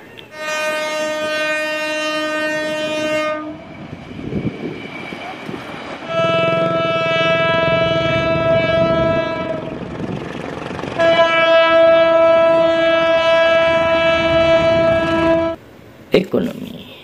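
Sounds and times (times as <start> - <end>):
locomotive horn blasts: 0.2 - 3.8, 6.0 - 9.9, 11.0 - 15.6
diesel engine running: 6.1 - 12.8.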